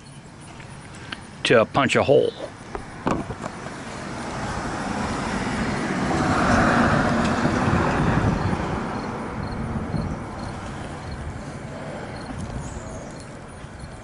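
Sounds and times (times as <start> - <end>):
vehicle passing by: 3.6 - 14.0.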